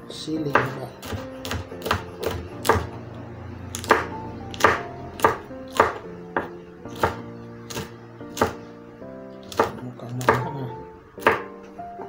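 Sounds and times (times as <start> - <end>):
knife chopping on wooden board: 0.4 - 3.0, 3.7 - 8.6, 9.4 - 10.6, 11.2 - 11.6.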